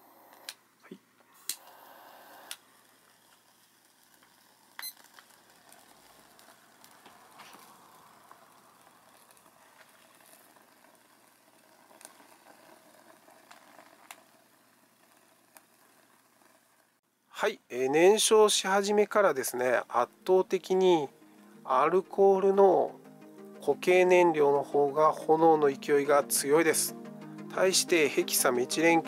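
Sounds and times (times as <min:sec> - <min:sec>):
torch lighter clicking and hissing: 0:01.4 - 0:16.8
fuel tablets sizzling and crackling: 0:01.4 - 0:17.0, 0:18.1 - 0:29.0.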